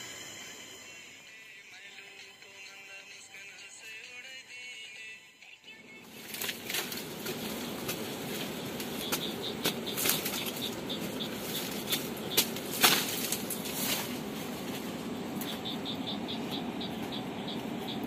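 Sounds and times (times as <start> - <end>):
dry leaves rustling: 6.0 - 18.0
stalks snapping and crackling: 6.1 - 15.6
insect chirping: 6.2 - 18.0.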